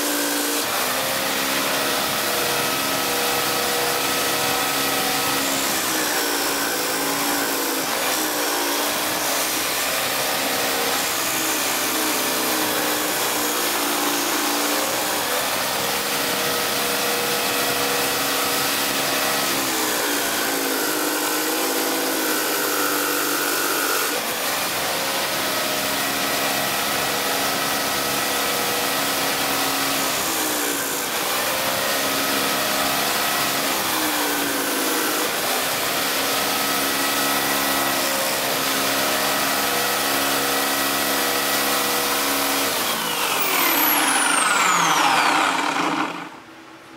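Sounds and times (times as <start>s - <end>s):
electric drill disc sander running: 0.0s - 46.6s
wood sanding against disc: 42.7s - 46.4s.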